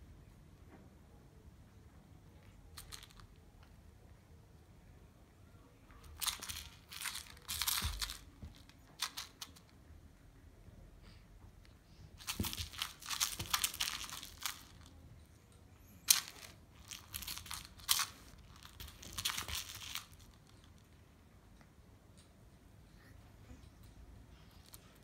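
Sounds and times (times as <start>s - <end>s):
kitten scrabbling rustles: 12.2s - 14.9s.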